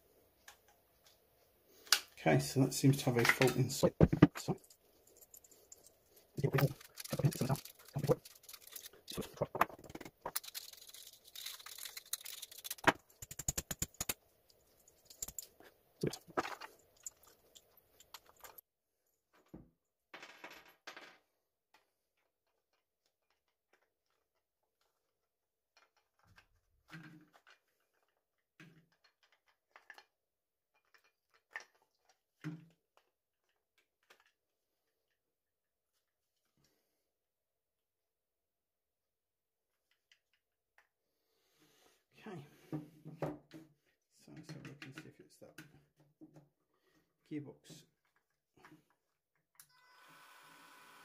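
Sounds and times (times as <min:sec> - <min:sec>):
small parts rattling on wooden table: 0:03.2 - 0:14.2.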